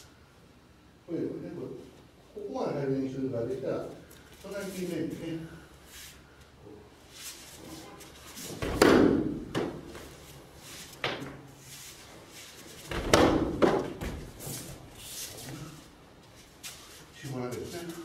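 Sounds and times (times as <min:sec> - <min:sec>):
light footfalls: 0:08.0 - 0:15.6
bodies thudding on foam mats: 0:08.5 - 0:10.2, 0:12.8 - 0:14.9.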